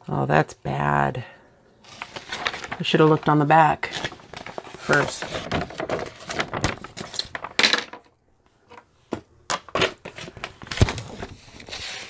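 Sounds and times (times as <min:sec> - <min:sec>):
canvas rustling and crinkling: 0:01.8 - 0:07.5.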